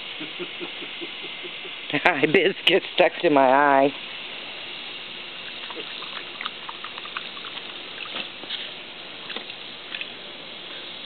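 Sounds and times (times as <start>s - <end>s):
water splashing in pool: 4.8s - 10.2s
dog drinking water: 5.4s - 8.5s.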